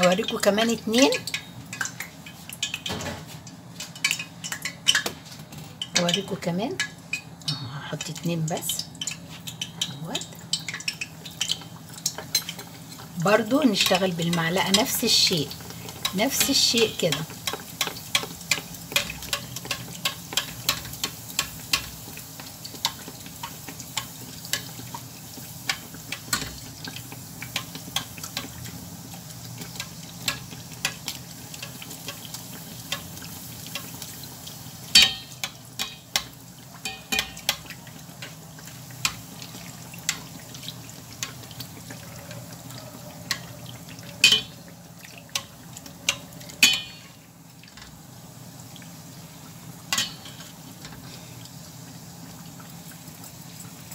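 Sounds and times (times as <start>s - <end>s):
dough sizzling in hot oil: 0.0s - 53.9s
spoon knocking on pan: 34.9s - 37.7s, 44.2s - 44.6s
metal spoon clicking against pan: 35.0s - 37.7s.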